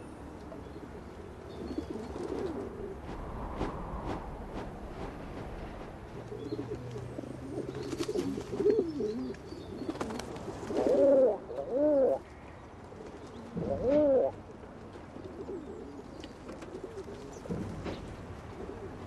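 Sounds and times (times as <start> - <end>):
pigeons cooing: 0.7 - 3.0, 6.2 - 12.2, 13.4 - 17.6.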